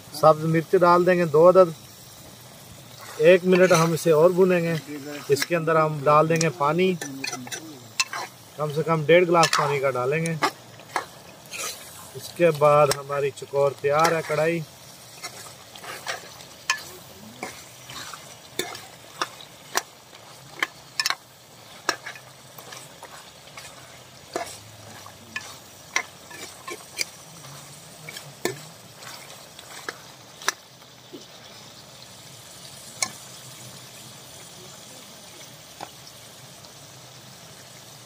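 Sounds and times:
meat sizzling: 0:00.0 - 0:38.0
metal ladle scraping a pot: 0:02.9 - 0:13.1, 0:13.9 - 0:30.6.

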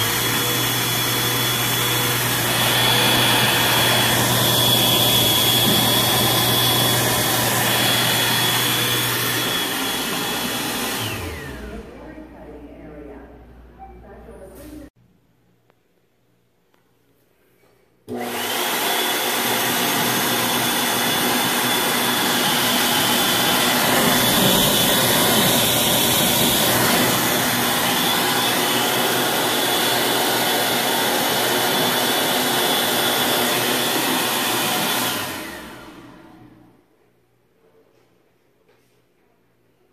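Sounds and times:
electric hand dryer running: 0:00.0 - 0:12.5, 0:18.1 - 0:36.7.

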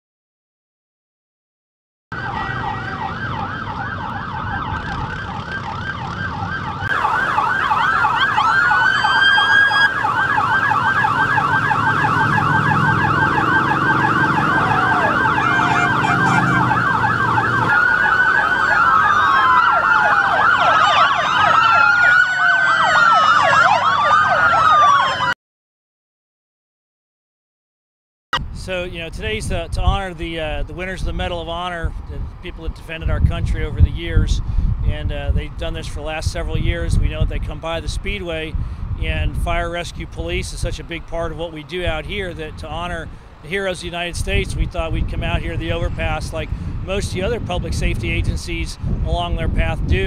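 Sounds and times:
emergency siren yelp: 0:02.1 - 0:25.4
siren wails: 0:02.1 - 0:25.4
motorcycle engines rumbling: 0:02.2 - 0:23.2, 0:28.4 - 0:50.0.

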